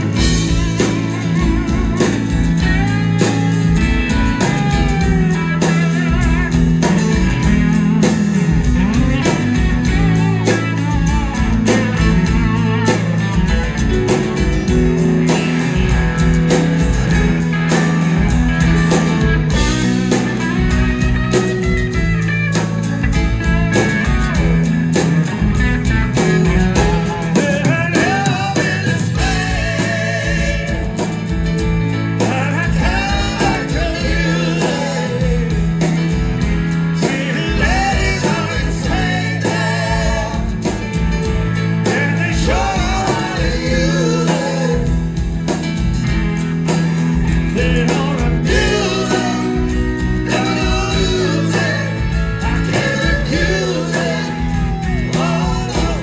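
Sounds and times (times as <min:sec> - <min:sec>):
live rock band playing: 0:00.0 - 0:56.0
person singing: 0:26.7 - 0:31.4, 0:32.2 - 0:36.1, 0:36.9 - 0:41.1, 0:41.8 - 0:45.3, 0:47.5 - 0:56.0.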